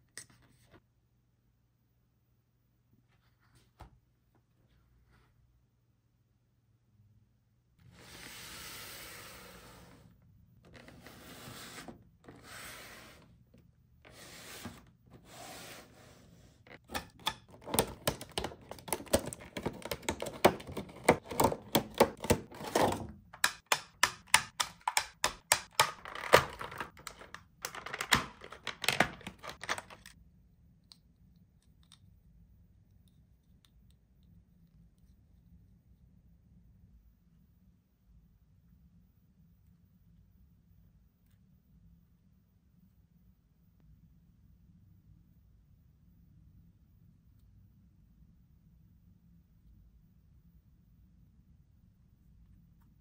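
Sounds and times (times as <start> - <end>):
cardboard and plastic crackling: 17.5 - 23.5, 24.2 - 30.1.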